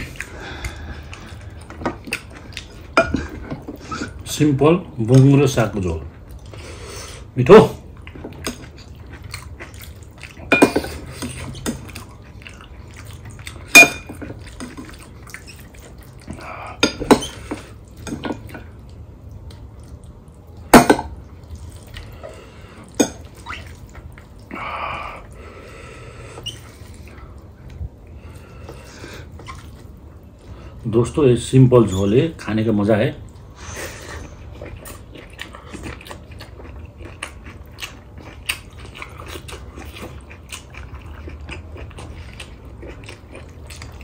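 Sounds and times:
soft eating sounds: 0:00.0 - 0:44.0.

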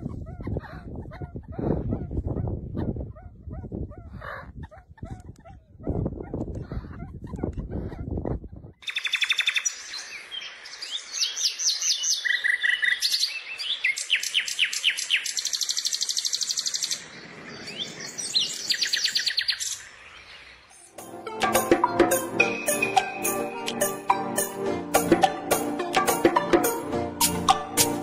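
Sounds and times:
songbirds singing: 0:08.8 - 0:21.0
music with jingling percussion: 0:21.0 - 0:28.0.

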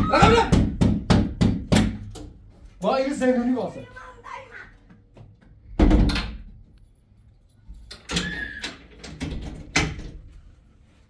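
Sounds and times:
metal-framed door banging shut: 0:08.0 - 0:10.3.

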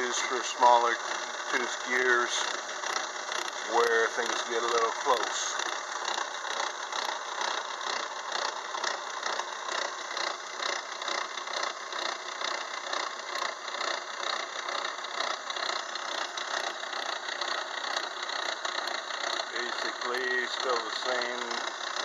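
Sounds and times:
lathe gear cutter chattering: 0:00.0 - 0:22.0.

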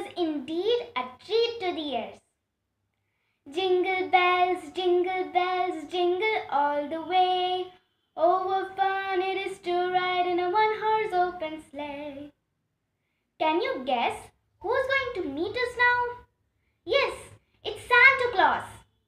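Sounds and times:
girl singing: 0:00.0 - 0:02.2, 0:03.5 - 0:12.4, 0:13.4 - 0:16.3, 0:16.9 - 0:18.8.

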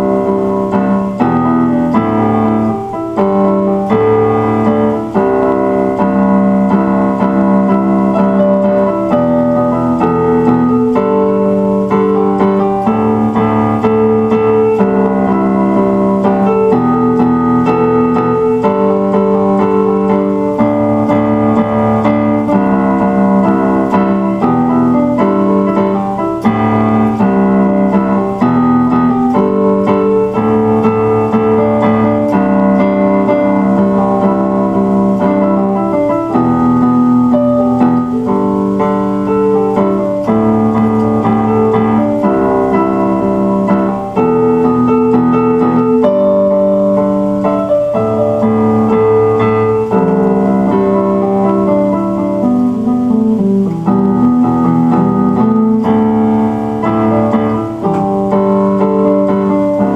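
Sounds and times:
slow electric piano chords: 0:00.0 - 0:59.9.

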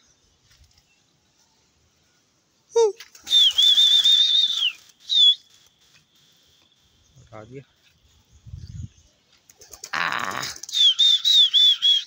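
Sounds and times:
person whistling: 0:02.8 - 0:05.3
pigeon wings flapping: 0:09.5 - 0:11.0.

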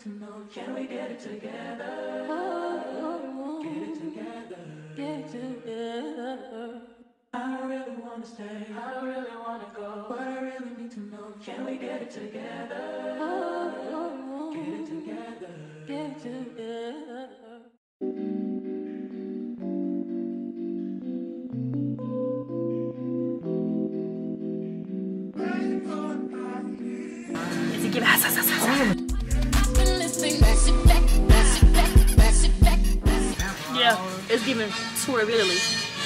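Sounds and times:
harmonised a cappella singing: 0:00.0 - 0:17.8, 0:25.4 - 0:34.8.

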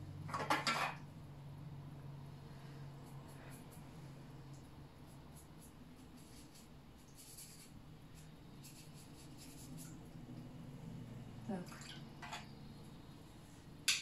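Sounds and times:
low steady hum: 0:00.0 - 0:14.0
paintbrush swishing on paper: 0:05.1 - 0:10.0.

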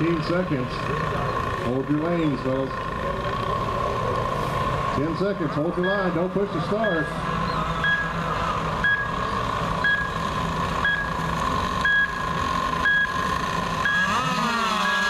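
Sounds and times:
model boat motors whining: 0:00.0 - 0:15.0
countdown timer beeps: 0:05.8 - 0:06.2, 0:06.8 - 0:07.2, 0:07.8 - 0:08.2, 0:08.8 - 0:09.2, 0:09.8 - 0:10.2, 0:10.8 - 0:14.2.

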